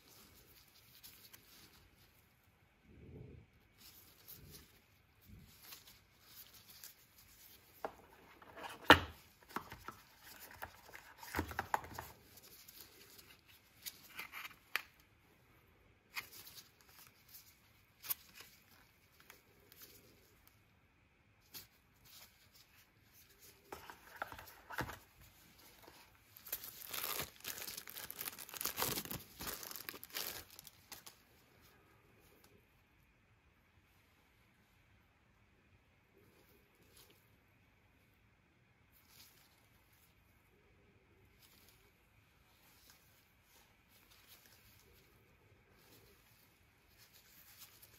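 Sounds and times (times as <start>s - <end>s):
plastic wrap crinkling: 3.8s - 15.1s, 21.5s - 31.2s.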